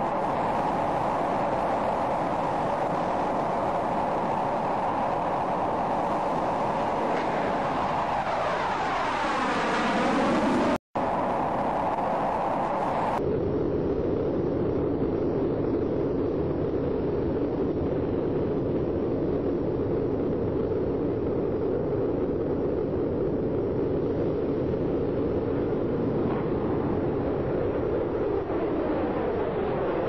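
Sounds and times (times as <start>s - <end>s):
jet engines roaring: 0.0s - 13.2s.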